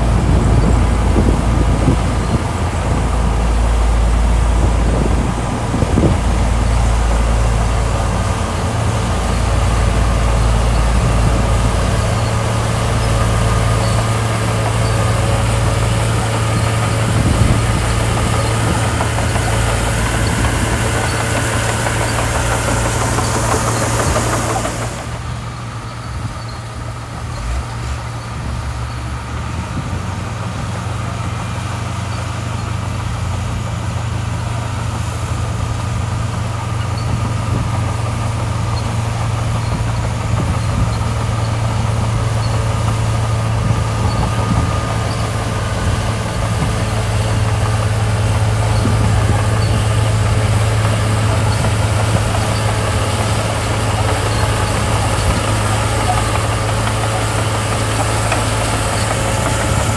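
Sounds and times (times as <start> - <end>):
diesel engine droning: 0.0 - 59.9.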